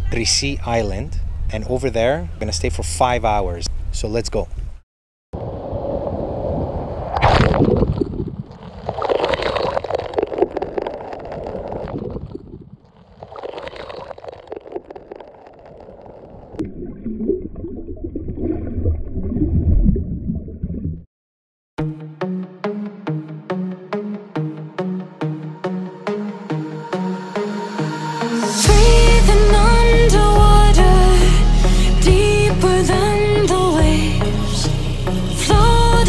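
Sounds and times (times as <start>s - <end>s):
seawater sloshing and gurgling: 6.1s - 21.0s.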